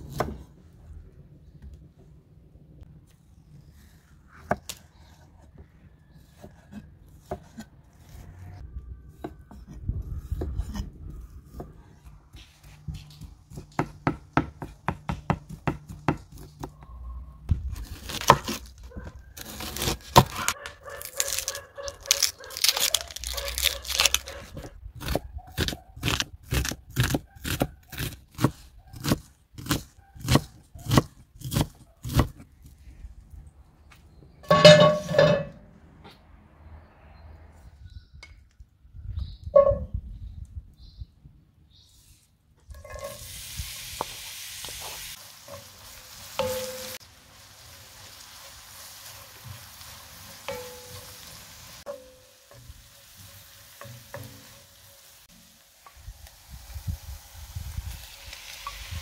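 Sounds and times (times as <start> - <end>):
onion skins crackling: 17.5 - 32.6.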